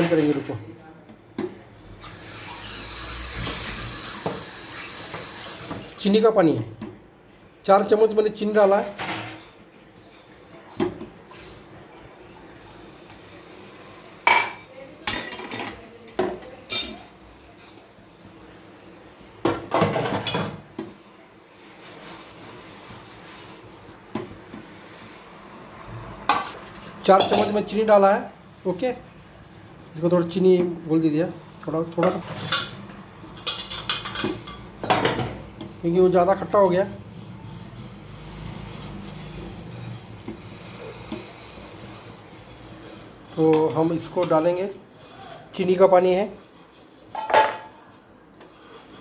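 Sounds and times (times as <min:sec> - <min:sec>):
sugar water boiling with faint hiss: 0:09.7 - 0:49.0
tongs clattering against a metal pan: 0:15.0 - 0:17.1, 0:33.4 - 0:35.2.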